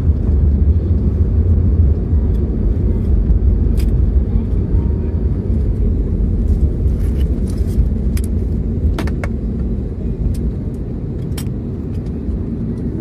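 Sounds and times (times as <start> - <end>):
airliner rumble in cabin: 0.0 - 13.0.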